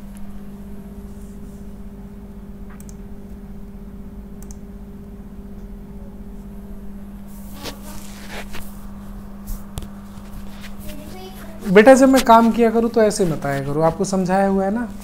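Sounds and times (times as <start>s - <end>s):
low electrical hum: 0.0s - 15.0s
faint clicks: 2.7s - 3.0s, 4.4s - 4.6s.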